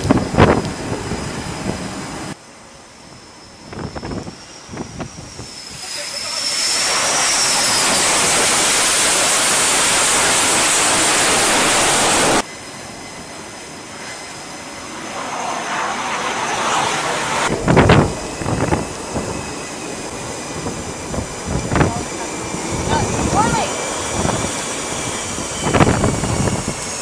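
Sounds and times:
high jet whine: 0.0 - 27.0
jet engines blasting: 0.0 - 27.0
steady rush: 5.4 - 26.9.

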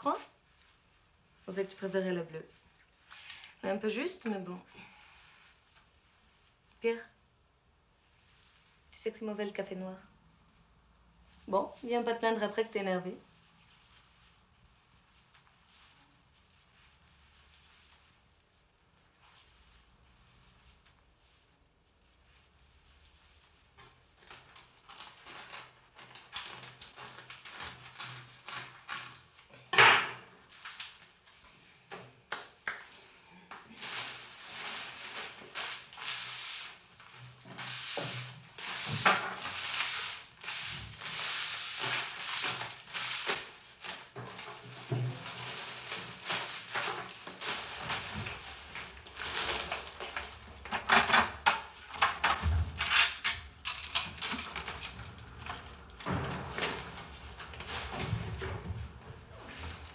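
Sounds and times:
scraping and rustling: 33.7 - 50.6, 51.8 - 59.9.

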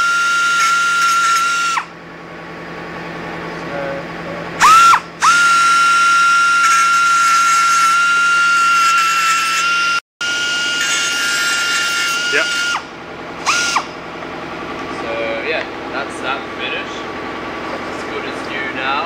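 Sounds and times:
belt sander grinding metal: 0.0 - 1.9, 4.6 - 14.0.

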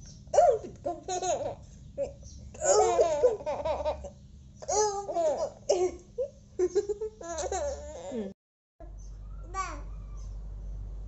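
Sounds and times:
baby babbling and laughing: 1.2 - 5.9, 7.2 - 8.3, 9.4 - 10.0.

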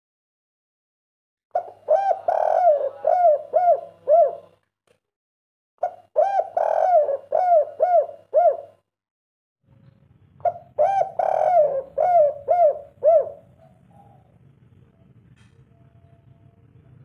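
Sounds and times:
dove cooing: 1.6 - 4.6, 5.8 - 8.8, 10.4 - 14.4
faint low hum: 11.5 - 17.0.

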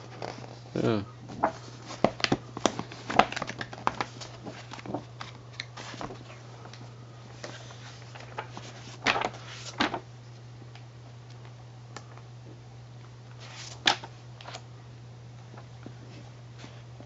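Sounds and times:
book pages turning: 0.0 - 0.7, 1.3 - 10.0, 13.4 - 14.6.

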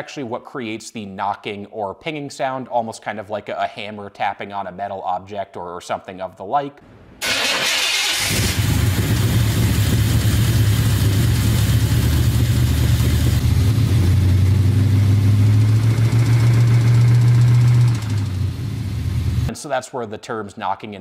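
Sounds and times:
car engine running: 8.3 - 19.5
engine knocking and pinging: 8.6 - 14.3, 15.6 - 18.7.

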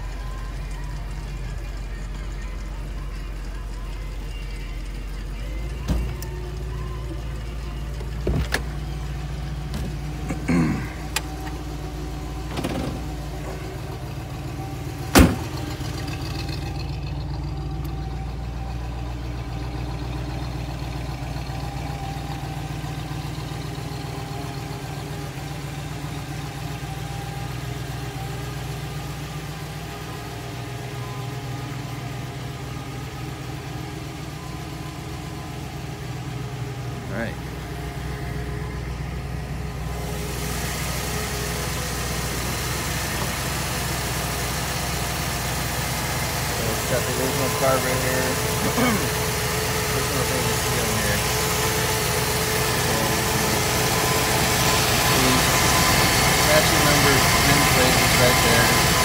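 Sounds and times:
car engine idling: 0.0 - 59.0
engine knocks: 5.6 - 6.6, 8.0 - 18.2.

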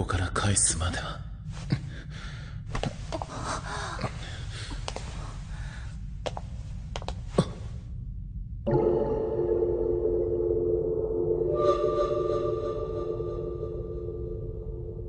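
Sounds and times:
steady low rumble: 0.0 - 11.5, 12.1 - 15.0
person breathing and gasping: 1.8 - 6.0.

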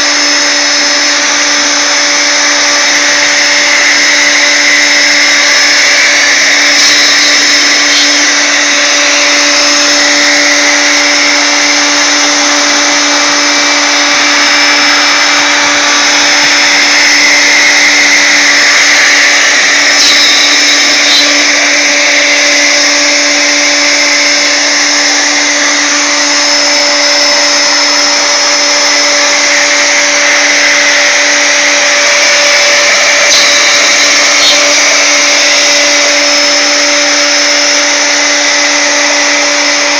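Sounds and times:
router motor whine: 0.0 - 39.9
bit cutting wood hiss: 3.4 - 10.9, 14.3 - 23.0, 32.1 - 36.4.

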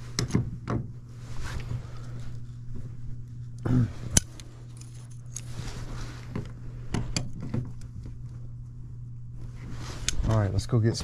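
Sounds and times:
low equipment hum: 0.0 - 11.0
tools clicking and rattling: 4.2 - 5.5.

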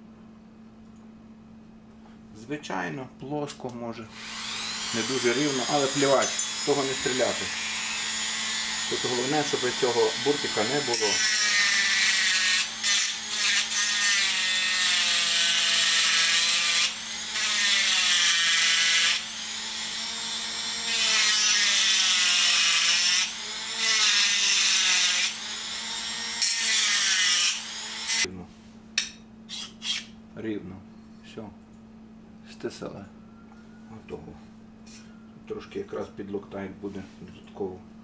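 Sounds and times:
rotary grinder grinding metal: 4.1 - 28.3.

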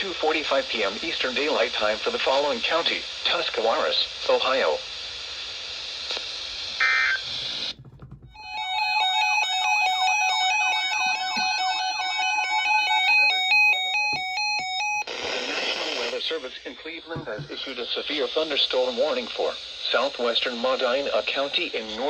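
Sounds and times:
radio chirp: 0.0 - 7.8, 9.3 - 22.0
radio receiver hiss: 0.0 - 7.8, 15.0 - 22.0
electronic alarm beeps: 8.4 - 15.1.

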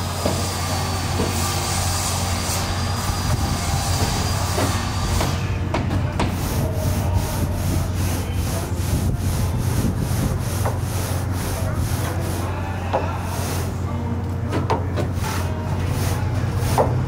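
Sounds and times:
brush scrubbing metal screen: 6.3 - 12.6, 15.1 - 17.0.

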